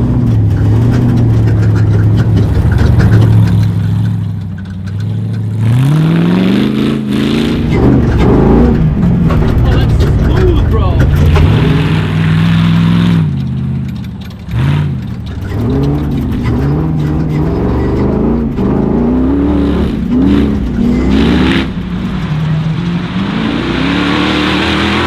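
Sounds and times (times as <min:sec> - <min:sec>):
pickup engine revving hard: 0:11.1 - 0:13.3, 0:14.5 - 0:25.0.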